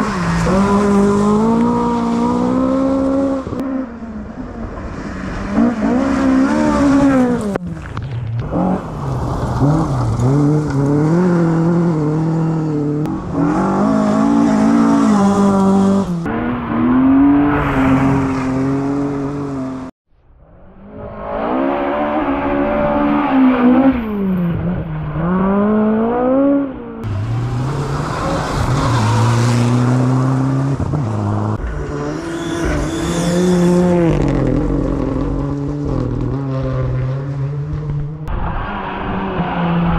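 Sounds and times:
rally car engines revving: 0.0s - 19.9s, 20.8s - 39.9s
turbocharged car passing: 20.6s - 39.9s.

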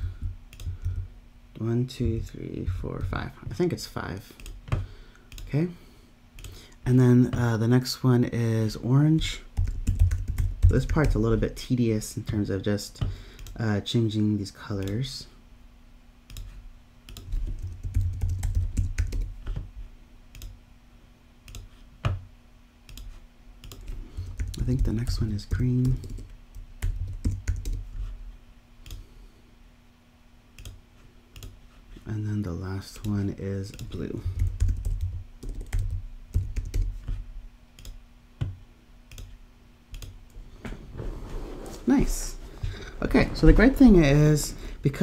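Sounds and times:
typing on computer keyboard: 9.6s - 11.2s, 17.1s - 19.3s, 22.9s - 25.0s, 25.8s - 27.8s, 33.7s - 36.9s.

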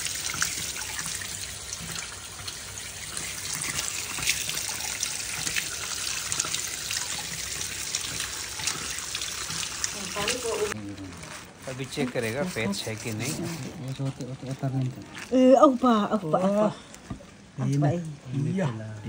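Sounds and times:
tap water pouring and splashing: 0.0s - 10.8s.

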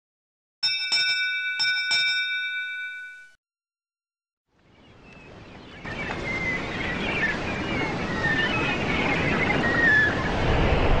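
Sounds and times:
bell struck: 0.6s - 3.4s
rushing noise: 9.0s - 11.0s.

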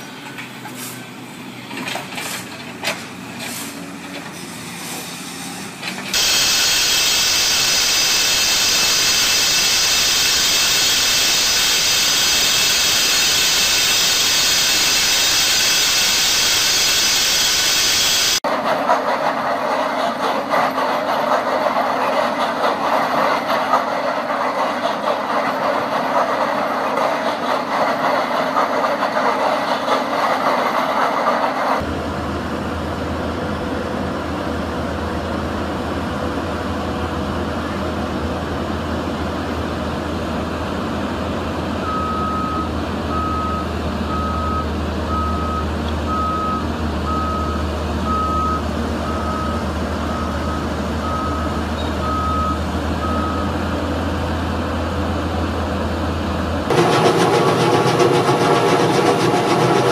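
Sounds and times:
heavy vehicle engine humming: 0.0s - 18.4s, 20.6s - 59.9s
loud mechanical din: 6.1s - 18.4s, 56.7s - 59.9s
reversing alarm beeping: 6.2s - 18.4s, 41.8s - 53.6s.

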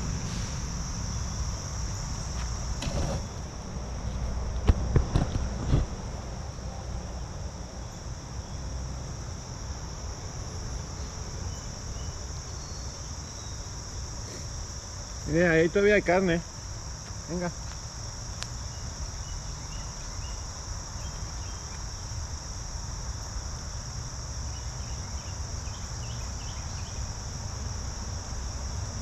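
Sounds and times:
insects chorus: 0.0s - 29.0s
close knocks and rustles: 2.4s - 3.3s.

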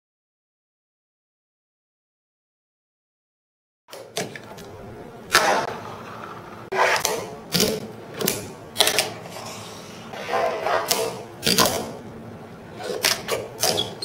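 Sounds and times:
fingerboard scraping: 5.3s - 7.3s.

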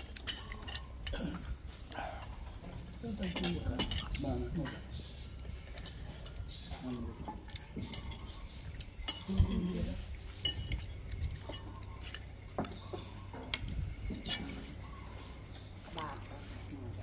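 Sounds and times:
cutlery clinking on plates: 10.3s - 16.4s.

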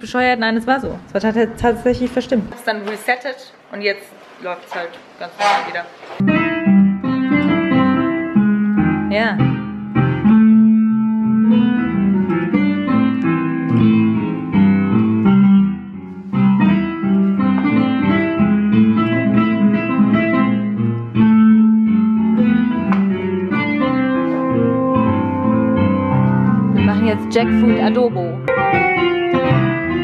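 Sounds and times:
electronic keyboard playing: 6.2s - 30.0s.

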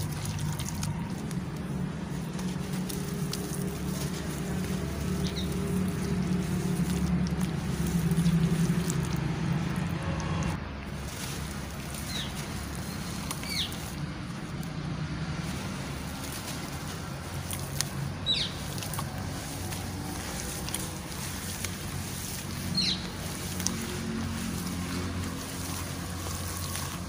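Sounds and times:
grit pattering into wet mush: 0.0s - 27.0s
soft crunching: 0.0s - 27.0s
bird chirps: 12.1s - 13.8s, 18.2s - 18.6s, 22.7s - 23.1s.

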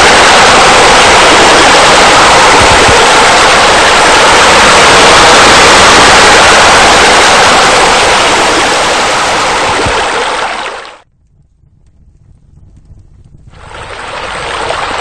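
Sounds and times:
loud steady rushing noise: 0.0s - 11.0s.

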